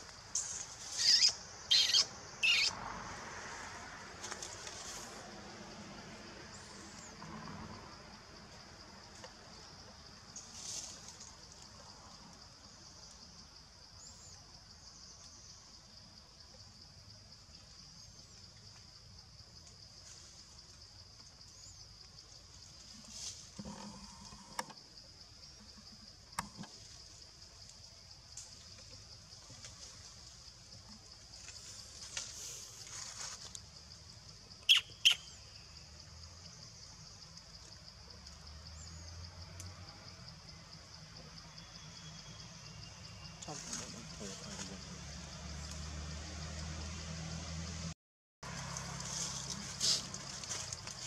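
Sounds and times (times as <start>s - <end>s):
faint insect chirps: 0.0s - 51.0s
monkey squeaks: 1.0s - 2.7s.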